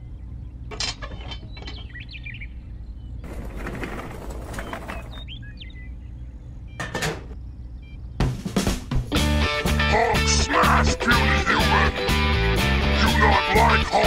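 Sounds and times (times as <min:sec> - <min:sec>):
bird chirps: 0:00.0 - 0:03.6, 0:04.3 - 0:08.4
steady low hum: 0:00.0 - 0:14.0.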